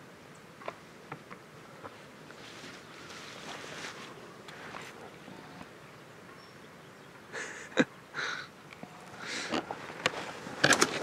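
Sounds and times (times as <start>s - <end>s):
brush and leaves rustling: 0.6s - 6.4s, 8.7s - 11.0s.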